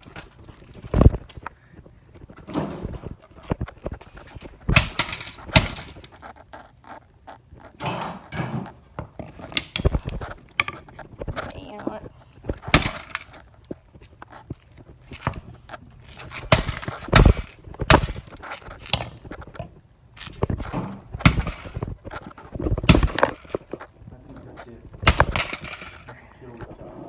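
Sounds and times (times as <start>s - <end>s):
loose pieces rattling on concrete: 2.2s - 6.3s, 9.0s - 23.9s, 24.9s - 26.1s
plastic casing cracking: 12.4s - 23.9s, 24.9s - 26.1s.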